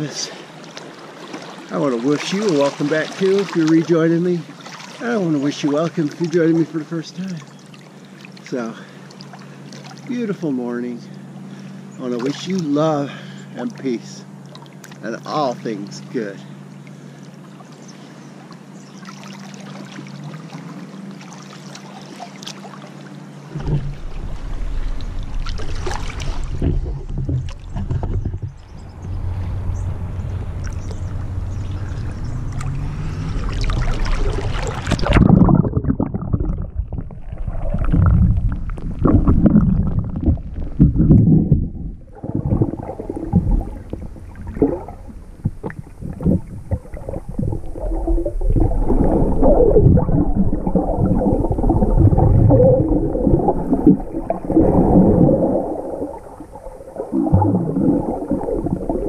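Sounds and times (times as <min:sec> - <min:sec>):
underwater sloshing and gurgling: 0:00.0 - 0:59.0
water splashing against camera: 0:00.7 - 0:07.5, 0:30.3 - 0:59.0.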